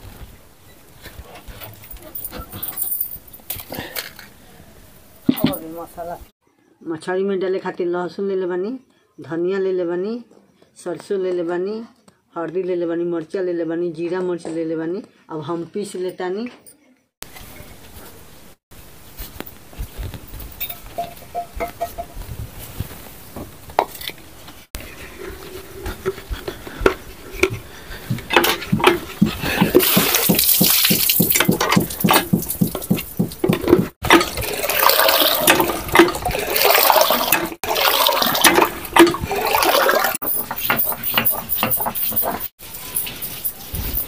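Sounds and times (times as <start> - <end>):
hand pump knocking: 21.0 - 22.1, 26.0 - 37.6, 38.2 - 42.5
water pouring into a pot: 29.8 - 31.4, 34.1 - 40.2.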